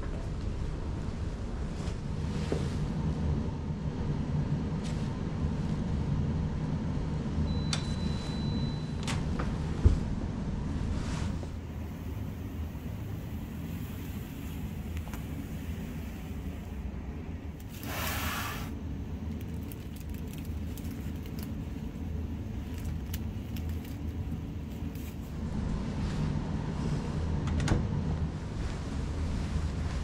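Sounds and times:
steady low rumble: 0:00.0 - 0:30.0
bag rustling: 0:19.3 - 0:25.3.

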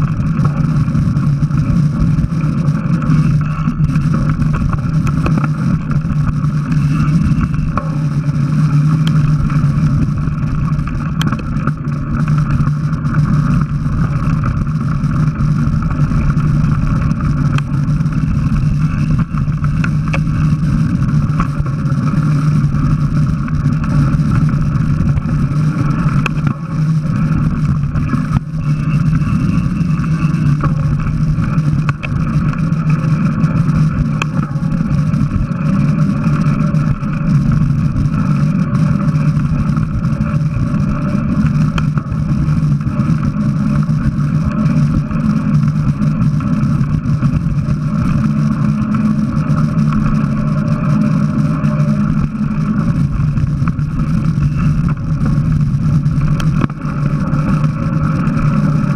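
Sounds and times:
bike tyres rolling over dirt: 0:00.0 - 0:58.9
wind on microphone: 0:00.0 - 0:58.9.

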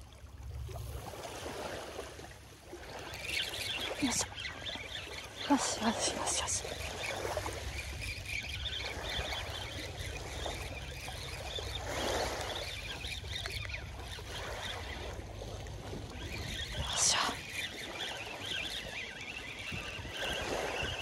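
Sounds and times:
small waves washing on shore: 0:00.0 - 0:21.0
wind rumbling on microphone: 0:05.5 - 0:21.0.

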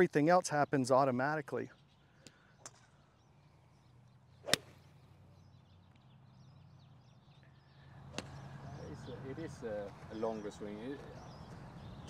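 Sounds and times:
golf club swish: 0:04.4 - 0:04.8
golf club striking ball: 0:04.4 - 0:04.9, 0:08.2 - 0:08.4.

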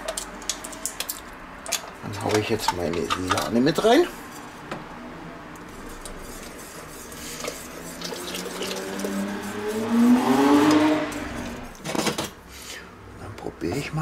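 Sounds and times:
whisk stirring sauce: 0:05.7 - 0:11.8
rising tone: 0:08.8 - 0:11.7.

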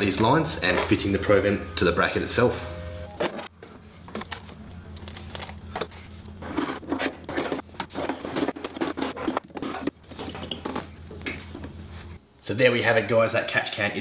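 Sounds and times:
plastic parts scraping and clicking: 0:03.2 - 0:11.6.

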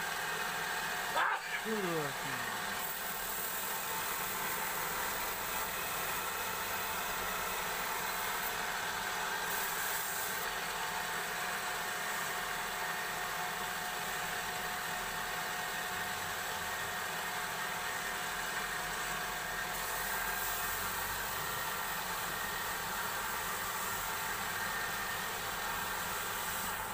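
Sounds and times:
sandpaper hissing on turning wood: 0:09.5 - 0:10.5, 0:25.2 - 0:26.9.

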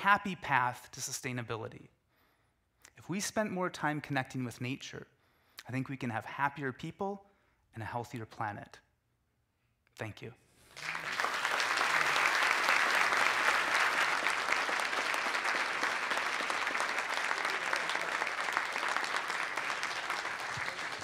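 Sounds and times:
audience applauding: 0:10.7 - 0:21.0.

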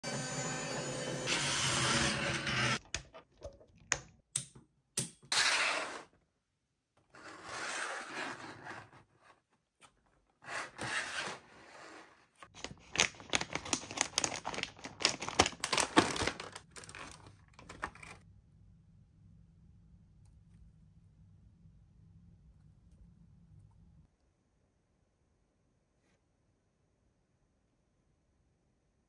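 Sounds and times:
packaging clicks and rustles: 0:12.5 - 0:18.2
stiff plastic crinkling: 0:12.5 - 0:18.2.

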